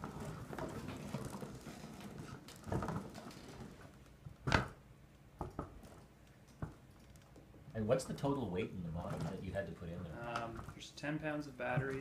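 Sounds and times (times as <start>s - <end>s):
robot ball rolling on carpet: 0.0s - 4.2s.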